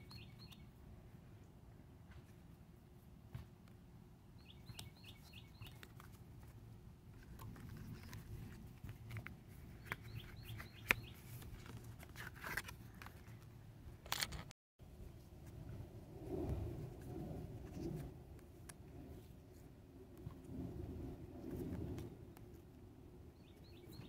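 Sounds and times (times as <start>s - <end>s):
songbird chirping: 0.0s - 0.7s, 4.4s - 6.0s, 9.7s - 11.4s, 23.3s - 24.0s
plastic sleeves rustling: 5.7s - 14.4s.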